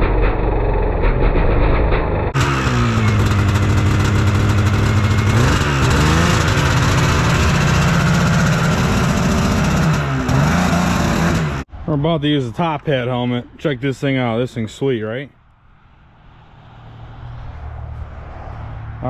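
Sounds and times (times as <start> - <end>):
two-stroke snowmobile engine revving: 0.0 - 11.7.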